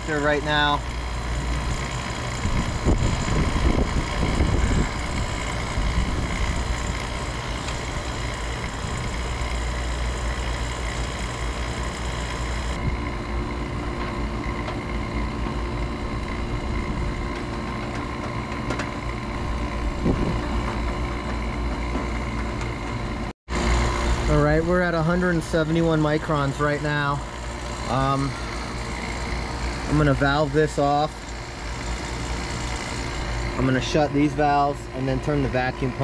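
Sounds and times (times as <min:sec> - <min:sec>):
vacuum pump motor humming: 0:00.0 - 0:36.0.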